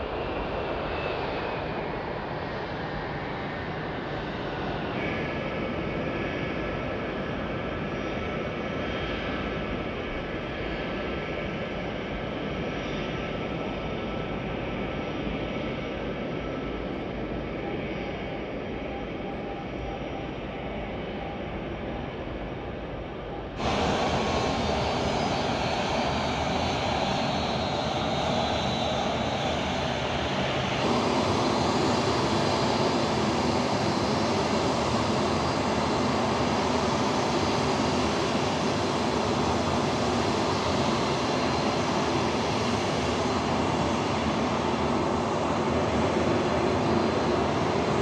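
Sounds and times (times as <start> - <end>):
jet engines running: 23.4 - 48.0.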